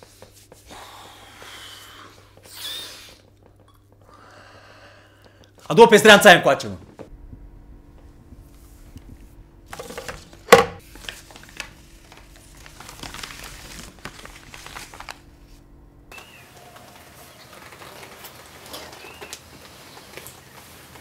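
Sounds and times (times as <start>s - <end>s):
rustling and scuffling: 8.6s - 21.0s.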